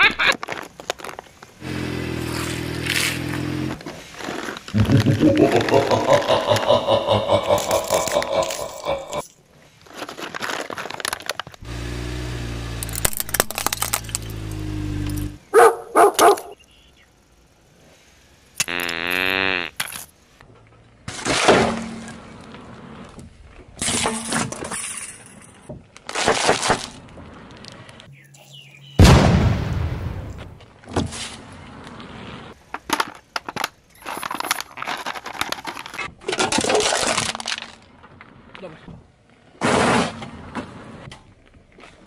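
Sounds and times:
tyre crushing plastic jars: 0:00.2 - 0:01.6, 0:09.8 - 0:11.6, 0:12.8 - 0:14.4, 0:32.6 - 0:38.0
low hum: 0:04.8 - 0:09.2.

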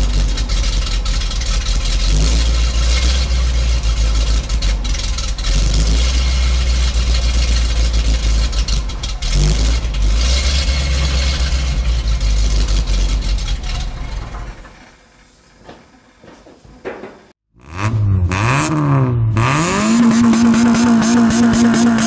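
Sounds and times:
truck engine running: 0:00.0 - 0:15.2.

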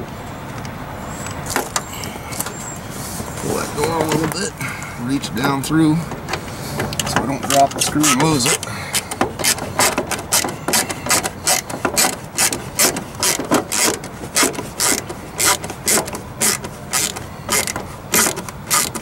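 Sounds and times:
ratcheting screwdriver clicking: 0:06.8 - 0:19.0.

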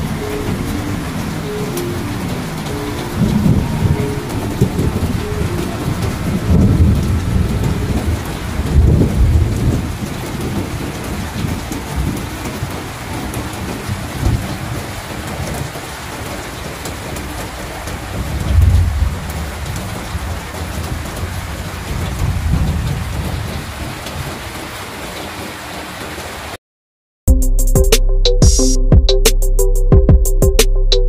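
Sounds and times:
rolling thunder: 0:00.0 - 0:24.7
heavy rain falling: 0:00.0 - 0:26.6.

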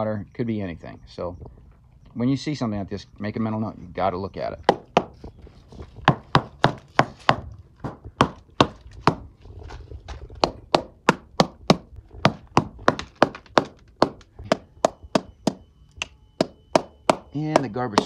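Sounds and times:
hammer tapping on wood: 0:04.7 - 0:05.2, 0:06.0 - 0:09.2, 0:10.4 - 0:18.0.

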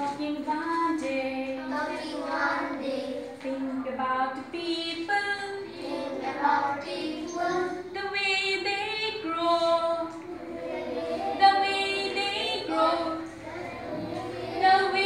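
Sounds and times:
children and woman singing: 0:00.0 - 0:15.0.

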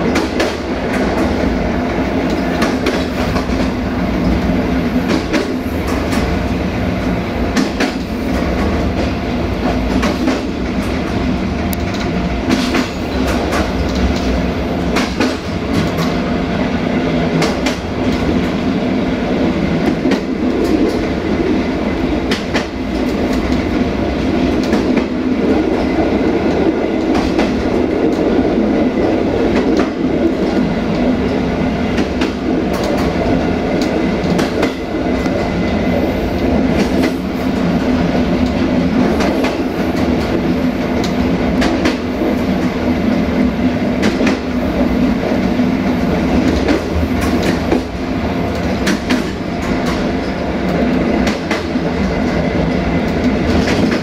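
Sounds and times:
train wheels on rails: 0:00.0 - 0:54.0
sharp clicks over rail joints: 0:11.7 - 0:16.2, 0:48.5 - 0:50.1.

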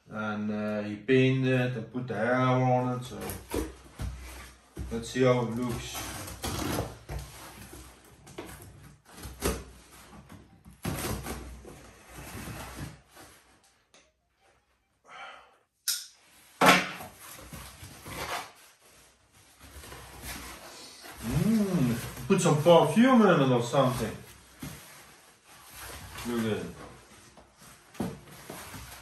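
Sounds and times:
cardboard flaps scraping and rustling: 0:03.1 - 0:13.7, 0:17.0 - 0:29.0.

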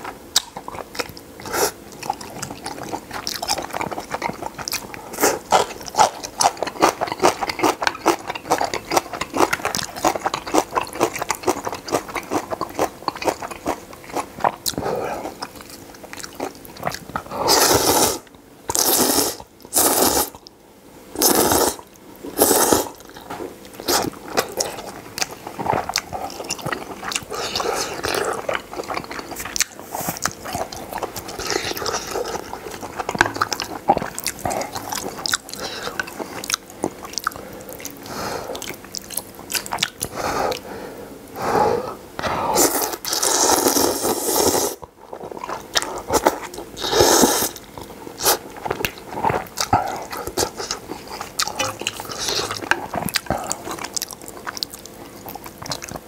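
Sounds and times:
wet chewing: 0:00.0 - 0:20.5, 0:21.2 - 0:40.6, 0:42.6 - 0:56.0
slurping noodles: 0:17.4 - 0:20.4, 0:21.2 - 0:21.8, 0:22.4 - 0:23.0, 0:42.2 - 0:44.8, 0:45.8 - 0:47.6.

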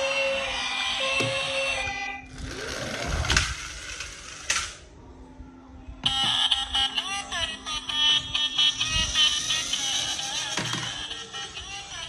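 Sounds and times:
toy car whirring: 0:00.0 - 0:04.8, 0:06.0 - 0:12.0
music: 0:04.5 - 0:12.0.

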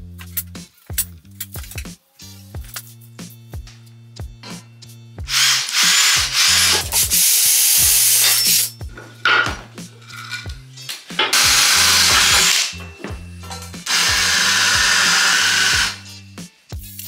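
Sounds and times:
music with steady beat: 0:00.0 - 0:17.0
cordless drill boring into steel: 0:05.3 - 0:08.7, 0:11.4 - 0:12.7, 0:13.8 - 0:16.0.

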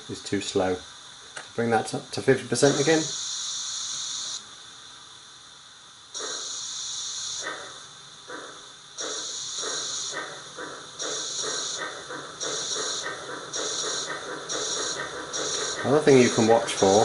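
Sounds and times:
steam hiss: 0:02.2 - 0:05.0, 0:06.1 - 0:17.0
steam locomotive chuffs from loudspeaker: 0:08.3 - 0:17.0.

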